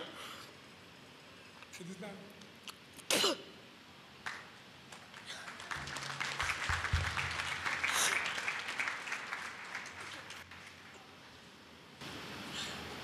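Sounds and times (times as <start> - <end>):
congregation clapping: 4.2 - 11.2.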